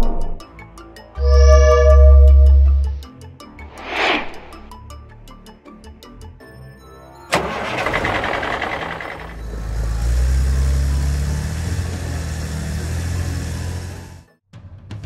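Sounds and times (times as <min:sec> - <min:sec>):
background music: 0:00.0 - 0:12.0
cartoon engine starting and rumbling: 0:07.3 - 0:14.3.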